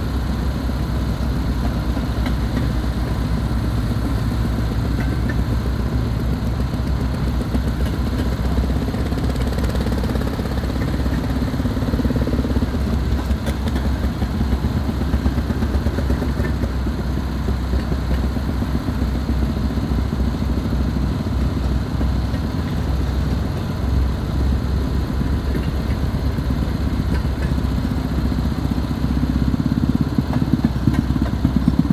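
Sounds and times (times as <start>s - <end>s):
railroad motorcar engine putter: 0.0s - 31.9s.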